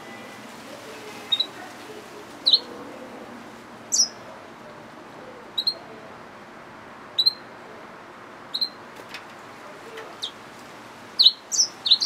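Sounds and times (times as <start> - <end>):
finch chirping: 1.3 - 1.5, 2.4 - 2.7, 3.9 - 4.2, 5.6 - 5.8, 7.2 - 7.4, 8.5 - 8.8, 11.2 - 12.0.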